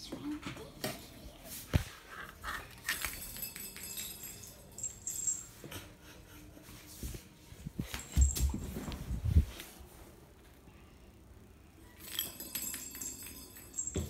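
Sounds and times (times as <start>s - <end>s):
thin metallic tinkle: 2.8s - 5.9s, 7.8s - 9.3s, 11.8s - 14.0s.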